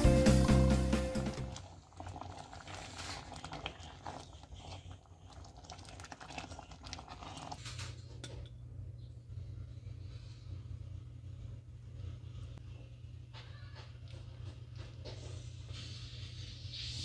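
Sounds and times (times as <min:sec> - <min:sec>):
ladle stirring thick stew: 0:01.5 - 0:07.6
low steady hum: 0:03.5 - 0:16.8.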